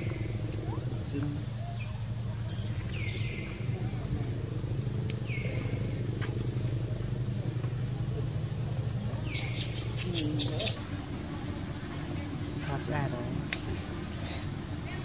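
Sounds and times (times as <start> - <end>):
steady low hum: 0.0 - 15.0
young macaque squeaking: 9.3 - 10.8.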